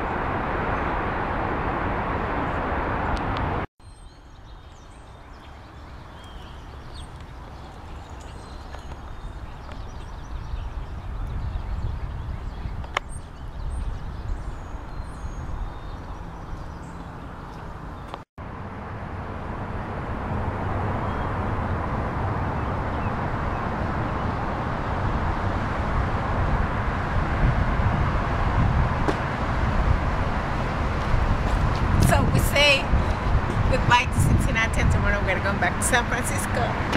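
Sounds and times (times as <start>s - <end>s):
traffic noise: 0.0s - 36.9s
wind rumbling on microphone: 0.0s - 36.9s
birds chirping: 3.8s - 18.2s.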